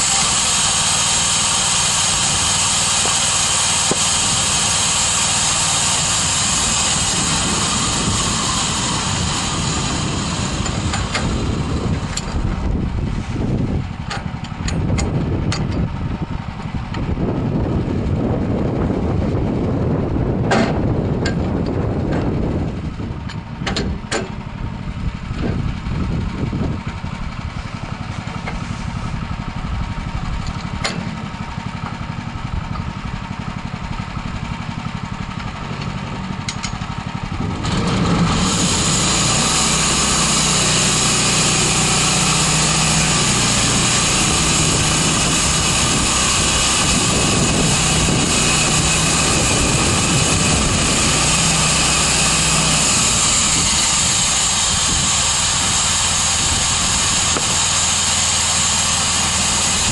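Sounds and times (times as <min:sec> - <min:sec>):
strong hiss: 0:00.0 - 0:13.7, 0:37.6 - 0:59.9
sawmill engine running: 0:00.0 - 0:59.9
sharp clicks and knocks: 0:14.1 - 0:15.9, 0:20.5 - 0:22.3, 0:23.3 - 0:24.4, 0:30.4 - 0:31.2, 0:35.8 - 0:36.8.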